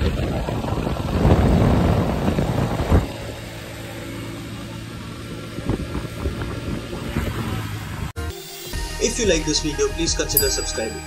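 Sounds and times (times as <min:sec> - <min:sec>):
wind rush: 0:00.0 - 0:03.6
motorcycle engine: 0:00.0 - 0:08.2.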